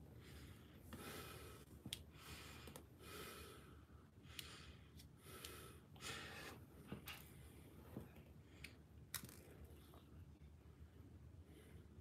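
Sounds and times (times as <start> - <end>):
person breathing faintly: 0.0 - 8.9.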